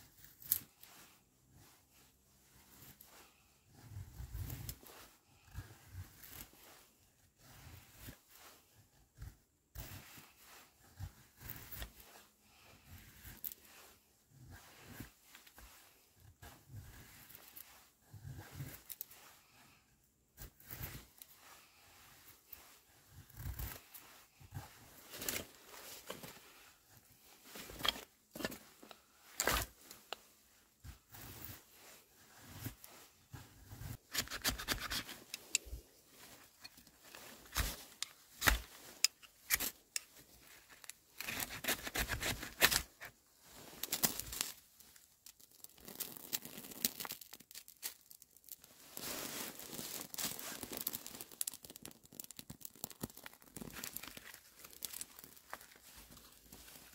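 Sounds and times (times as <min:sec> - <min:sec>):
knife scraping and tearing bark: 0:20.4 - 0:30.3, 0:31.1 - 0:56.9.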